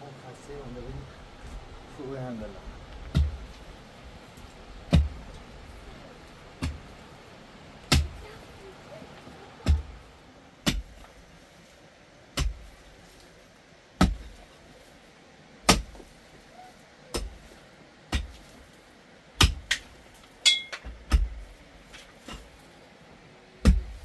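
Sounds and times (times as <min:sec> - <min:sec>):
digging tool striking earth: 0:03.1 - 0:03.6, 0:04.9 - 0:05.4, 0:06.6 - 0:06.9, 0:07.8 - 0:08.4, 0:09.6 - 0:10.0, 0:10.6 - 0:11.2, 0:12.3 - 0:13.3, 0:14.0 - 0:14.5, 0:15.6 - 0:16.2, 0:17.1 - 0:18.6, 0:19.4 - 0:22.6, 0:23.6 - 0:24.0
metal ringing on stone: 0:20.4 - 0:20.9.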